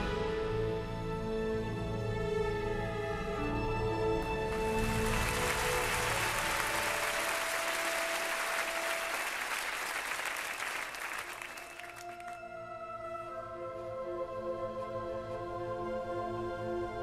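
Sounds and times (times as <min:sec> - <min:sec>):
audience applauding: 0:04.4 - 0:12.4.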